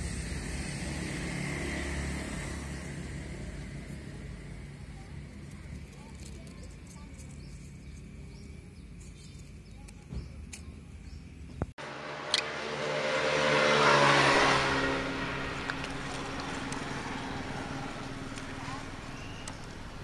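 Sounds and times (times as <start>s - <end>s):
vehicle passing by: 0.0s - 4.5s, 11.8s - 20.0s.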